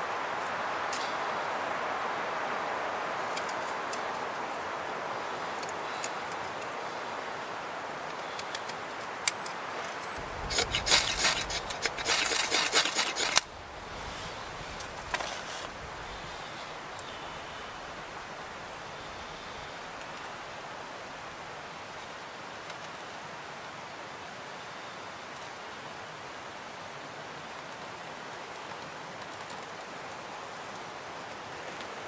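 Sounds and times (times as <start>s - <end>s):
knife shaving a stick: 10.1s - 17.2s
fast hard scraping strokes: 10.2s - 16.9s.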